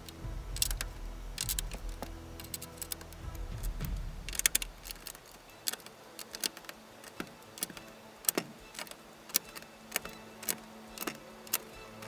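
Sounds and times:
plastic bricks clicking together: 0.0 - 12.0.

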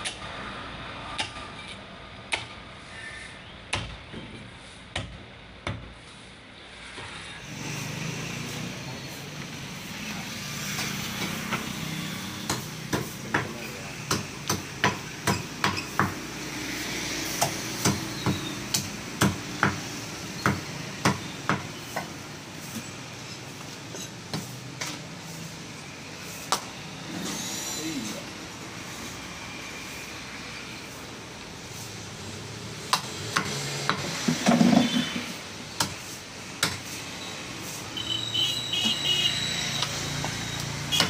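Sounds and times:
cleaver chopping on wooden block: 3.7 - 4.0, 12.4 - 16.2, 17.4 - 22.1.

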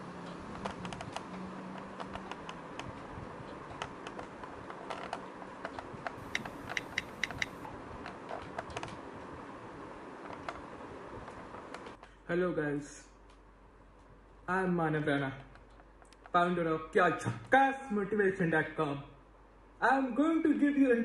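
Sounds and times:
keyboard typing clicks: 5.7 - 7.6
low steady hiss: 6.2 - 7.8.

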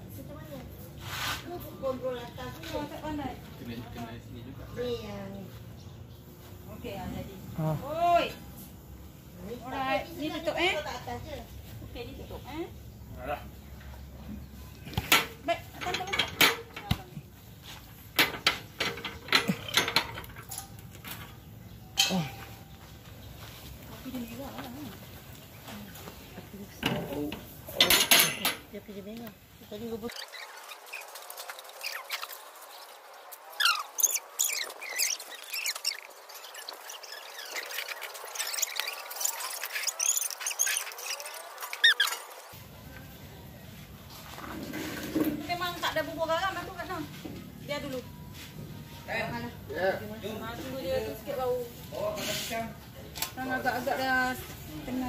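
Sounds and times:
light metallic clanks: 18.2 - 22.5, 26.8 - 28.7
small birds chirping: 28.8 - 43.2.

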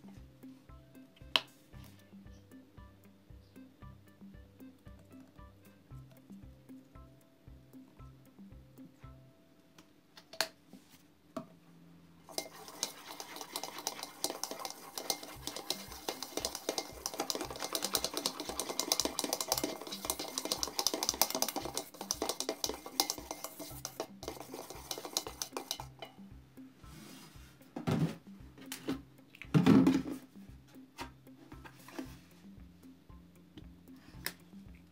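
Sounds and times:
background music with low beat: 0.0 - 9.7, 12.3 - 34.9
whisk clicking against bowl: 12.3 - 26.1.

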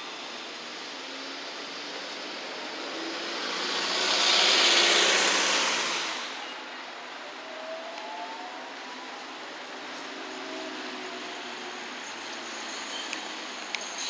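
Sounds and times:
thin high whine: 10.6 - 14.0.

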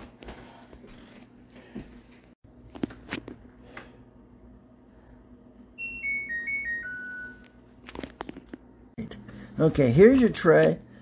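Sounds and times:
dishwasher electronic chime: 5.8 - 7.6.

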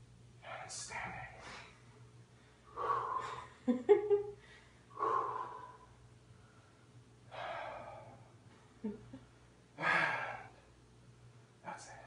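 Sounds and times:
people breathing heavily: 2.4 - 3.6, 4.4 - 8.7.

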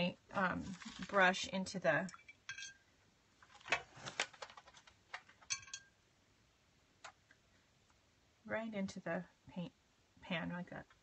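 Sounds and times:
paintbrush clinking on metal palette: 2.1 - 2.8, 5.4 - 5.9.

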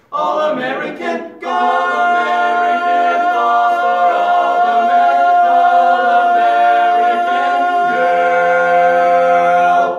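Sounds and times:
male quartet singing a cappella: 0.0 - 9.9.

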